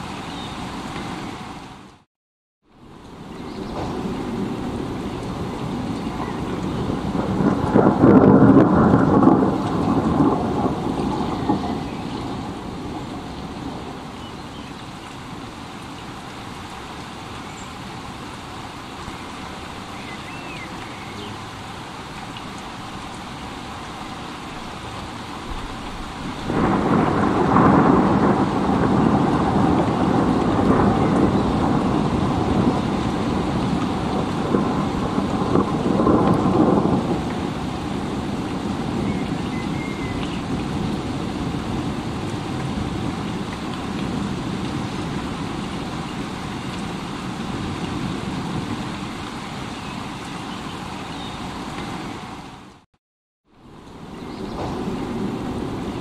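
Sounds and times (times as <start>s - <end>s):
rain hissing: 0.0s - 52.9s, 53.5s - 56.0s
rolling thunder: 3.2s - 14.2s, 25.4s - 46.0s, 54.1s - 56.0s.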